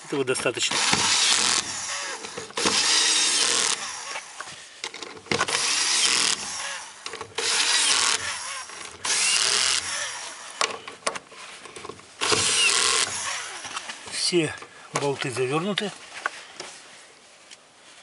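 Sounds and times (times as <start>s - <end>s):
cordless screwdriver running: 0.7s - 4.4s, 5.4s - 10.7s, 12.2s - 13.8s.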